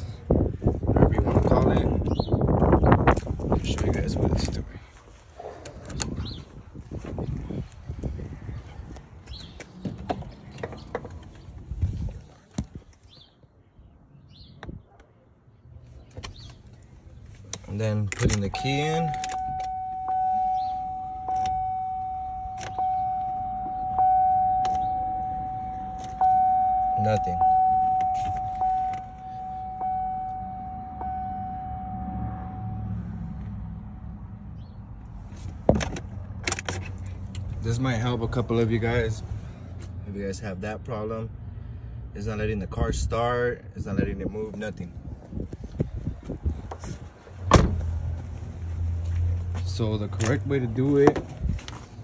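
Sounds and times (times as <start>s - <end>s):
dashboard warning chime: 18.3s - 33.0s
car door clicks and knocks: 47.5s - 47.8s.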